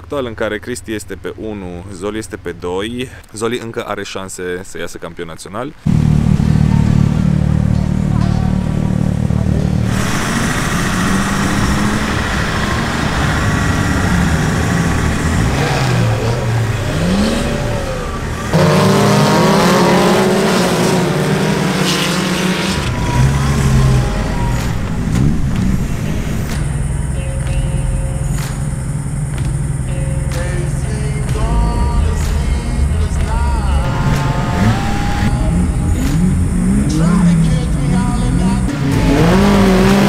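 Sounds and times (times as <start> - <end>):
off-road engines revving: 5.9 - 40.0.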